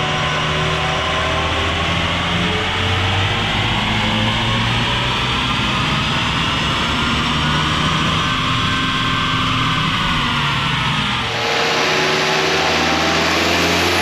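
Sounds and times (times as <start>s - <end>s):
car engine revving under load: 11.0s - 14.0s.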